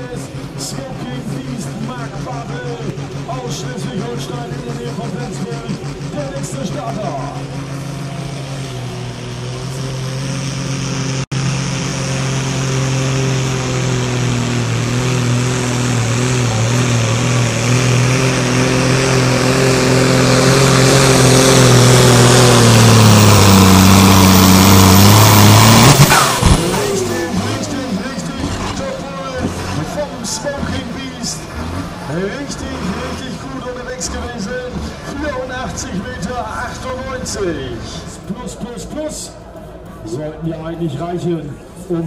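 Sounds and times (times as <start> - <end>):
tractor engine at full throttle: 0.0 - 42.0.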